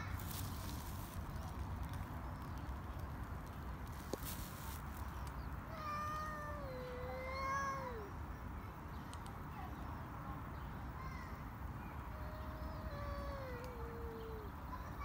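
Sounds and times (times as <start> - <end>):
cat yowling: 5.8 - 8.1.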